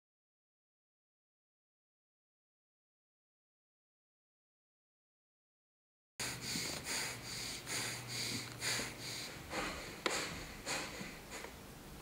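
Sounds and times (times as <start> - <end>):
person breathing hard sniffing: 6.2 - 11.6.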